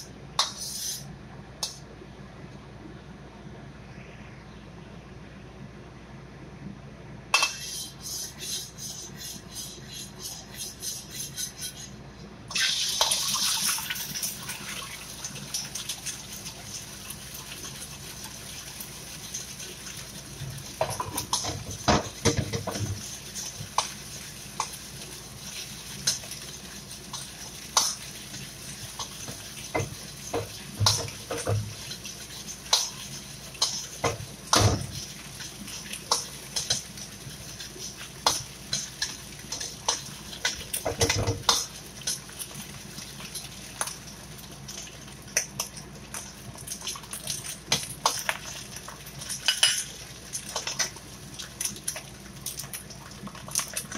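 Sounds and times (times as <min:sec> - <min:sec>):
ladle scraping and clanking wok: 0:07.4 - 0:12.0
egg sizzling in oil: 0:12.5 - 0:53.9.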